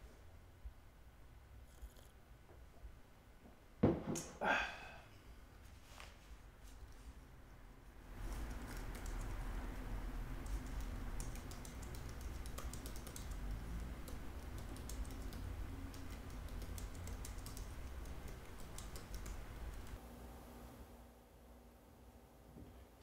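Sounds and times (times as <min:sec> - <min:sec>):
laptop keyboard typing: 0:08.1 - 0:20.0.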